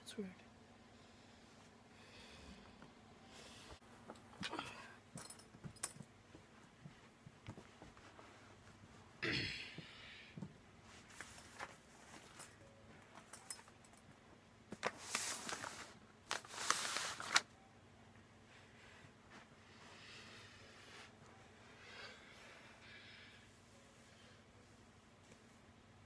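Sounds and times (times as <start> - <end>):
rustling on carpet: 6.3 - 9.1.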